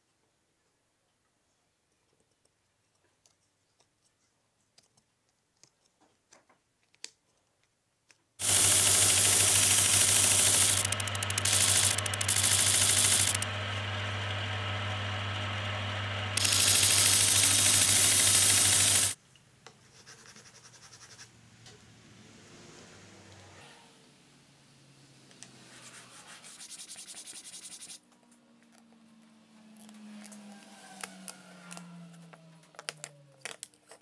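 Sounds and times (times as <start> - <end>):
disc sander grinding wood: 8.4 - 19.2
pencil scratching on wood: 19.9 - 21.3
sanding block rubbing wood: 25.7 - 28.0.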